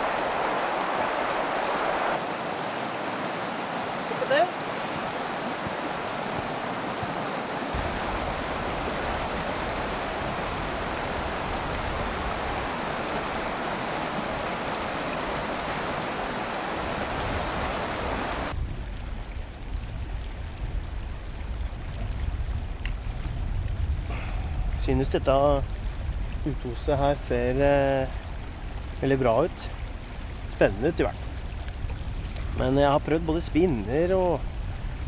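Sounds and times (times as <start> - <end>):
wind on microphone: 0.0 - 4.0, 4.7 - 35.0
river rushing over rocks: 0.0 - 18.6.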